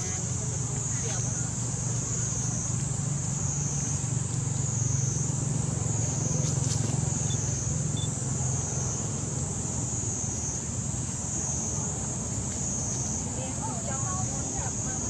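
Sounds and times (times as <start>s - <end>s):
low motor hum: 0.0s - 9.8s.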